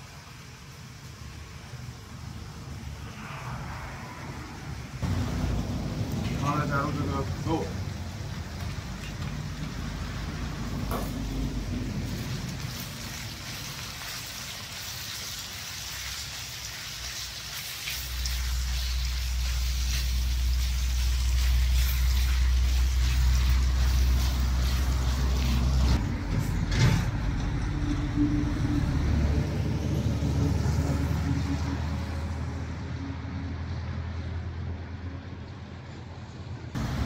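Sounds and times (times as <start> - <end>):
vehicle engine rumbling: 1.2 - 14.1, 18.0 - 37.0
stir-fry sizzling in a wok: 7.8 - 26.0.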